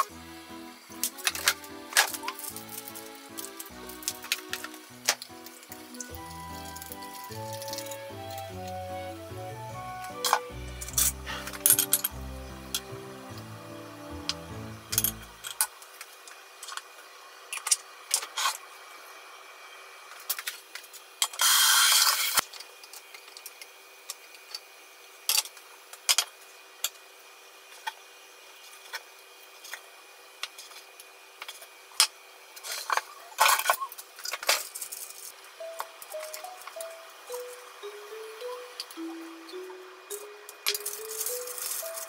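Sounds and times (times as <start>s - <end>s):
metal tongs and utensils clicking: 10.2s - 12.9s, 14.2s - 15.6s
loud hiss: 21.4s - 22.4s.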